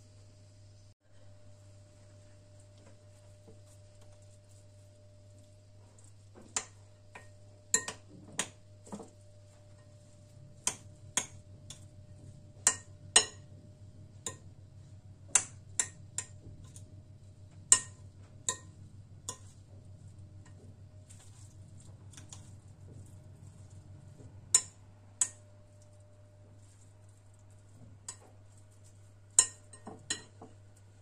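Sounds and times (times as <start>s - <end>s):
low steady hum: 0.0s - 31.0s
spoon clinking against glass bowl: 7.2s - 8.0s, 12.7s - 13.5s, 29.4s - 30.4s.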